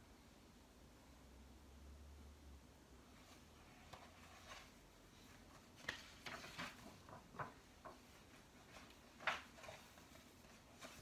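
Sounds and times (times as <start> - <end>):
book pages rustling and turning: 3.1 - 11.0.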